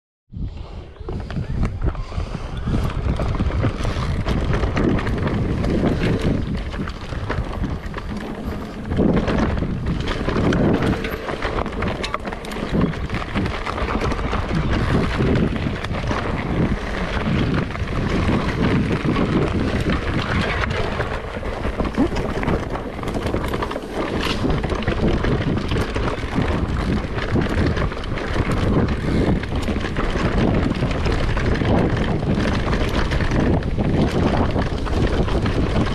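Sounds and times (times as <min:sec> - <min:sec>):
wind buffeting microphone: 0:00.3 - 0:35.9
bike rattling and knocking: 0:01.1 - 0:35.9
tyres rolling on dirt: 0:02.4 - 0:35.9.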